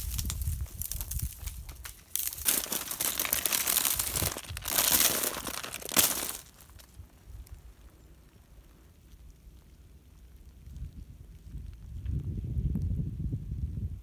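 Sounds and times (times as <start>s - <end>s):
ice cracking loudly: 0.0s - 7.5s
ice crackling and crunching: 0.0s - 12.1s.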